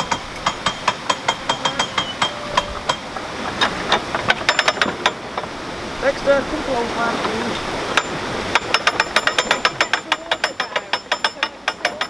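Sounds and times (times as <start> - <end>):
metallic clanks: 0.0 - 5.6, 7.2 - 12.0
ratchet clicking: 8.0 - 12.0.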